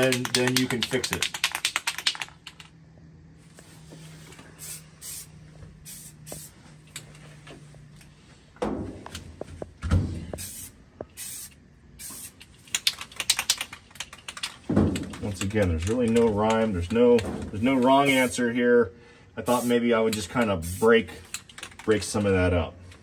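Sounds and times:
spray can mixing ball rattling: 0.0s - 2.7s, 10.4s - 18.4s, 19.5s - 22.4s
spray paint bursts: 4.6s - 6.6s, 10.4s - 15.3s, 17.6s - 18.4s, 19.4s - 22.0s.

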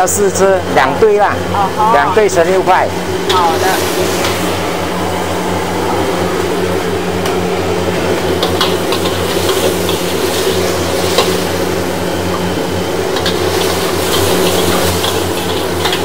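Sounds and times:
machine hum: 0.0s - 16.0s.

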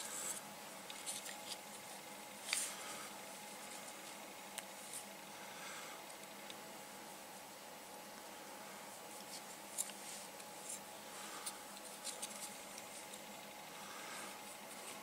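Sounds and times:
cord rustling: 9.1s - 13.3s.

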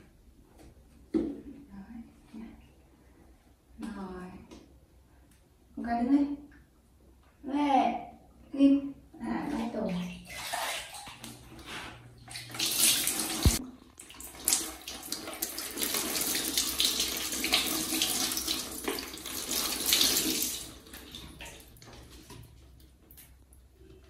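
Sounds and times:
water pouring and splashing: 9.6s - 23.4s.

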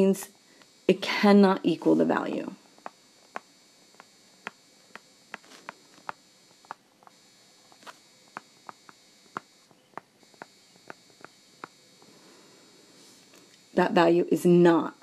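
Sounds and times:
faint electrical hum: 0.0s - 15.0s
stylus tapping on tablet screen: 2.8s - 7.2s, 7.8s - 11.8s.

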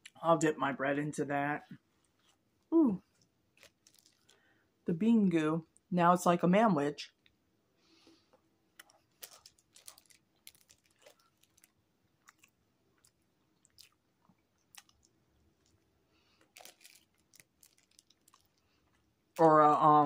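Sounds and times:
close-up chewing: 3.1s - 4.5s, 8.7s - 19.4s.

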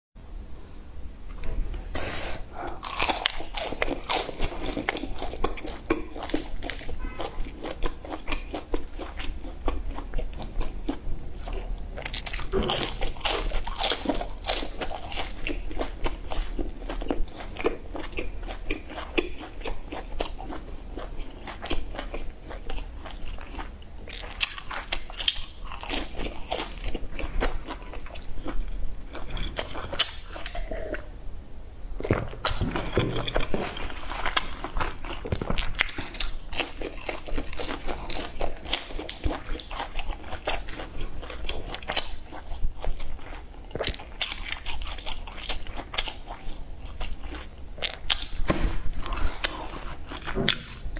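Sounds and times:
soft chewing: 1.3s - 31.1s, 32.0s - 50.9s
crunchy biting: 2.5s - 30.7s.

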